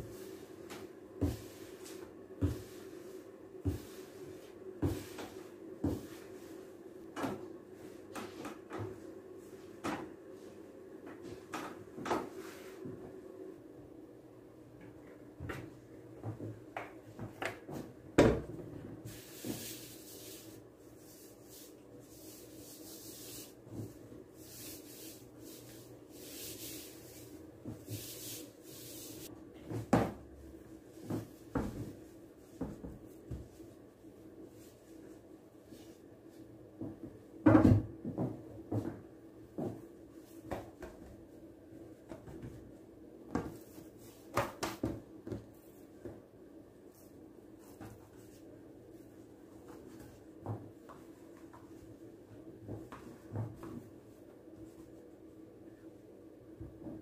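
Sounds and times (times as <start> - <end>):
dough and hands rubbing on counter: 0.0 - 6.9, 19.1 - 29.3
faint steady hum: 0.0 - 57.0.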